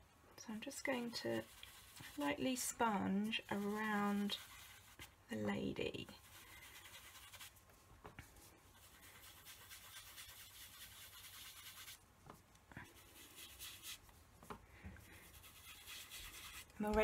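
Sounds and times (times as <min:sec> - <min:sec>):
sponge rubbing on cardstock: 0:00.9 - 0:05.2, 0:06.1 - 0:07.6, 0:08.3 - 0:12.0, 0:12.8 - 0:14.1, 0:15.0 - 0:17.0.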